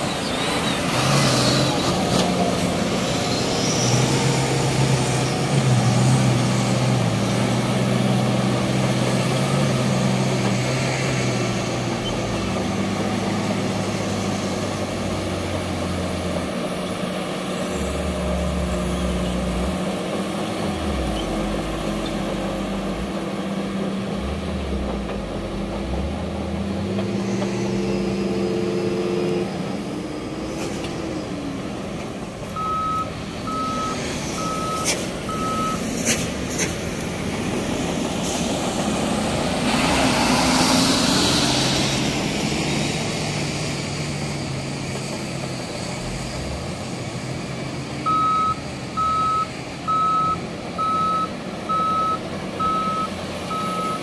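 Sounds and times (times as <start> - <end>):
bulldozer diesel engine under load: 0.0 - 54.0
short reversing beeps: 32.6 - 35.8, 48.1 - 54.0.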